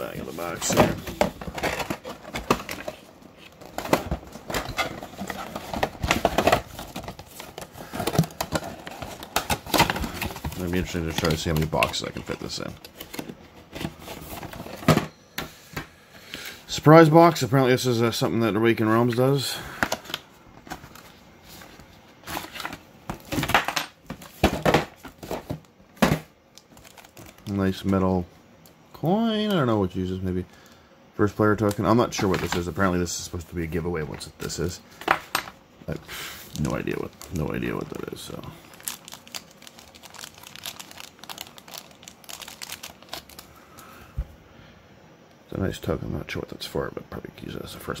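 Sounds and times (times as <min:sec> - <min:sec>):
packaging crinkling: 0:01.4 - 0:14.9, 0:26.5 - 0:27.9, 0:36.5 - 0:43.9.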